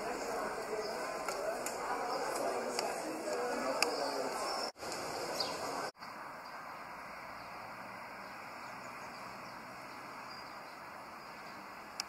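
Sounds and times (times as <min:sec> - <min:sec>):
faint outdoor background hiss: 0:00.0 - 0:12.0.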